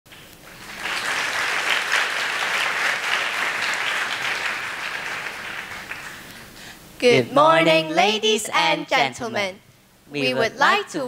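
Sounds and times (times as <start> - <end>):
audience applauding: 0.1 - 6.6.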